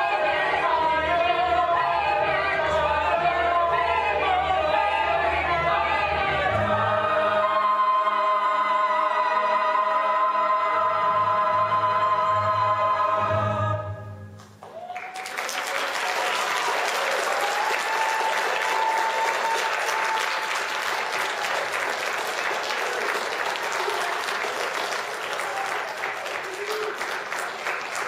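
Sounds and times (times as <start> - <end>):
choir holding a chord: 0.0 - 14.2
audience applause: 14.6 - 28.0
audience cheering: 14.6 - 28.0.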